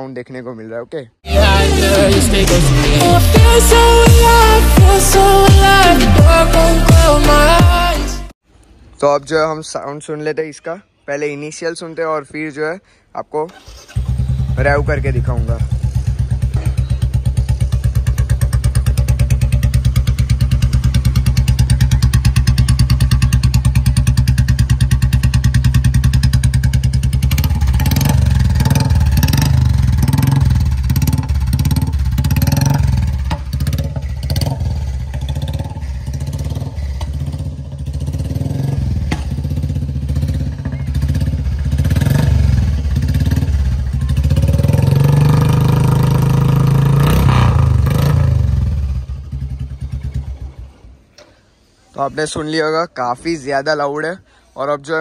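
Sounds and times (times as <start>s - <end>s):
motorcycle engine idling and revving: 13.5s - 51.3s.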